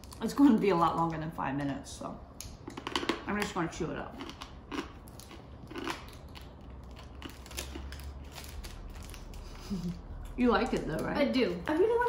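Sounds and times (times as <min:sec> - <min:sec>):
hard candy crunching: 0:02.4 - 0:10.8.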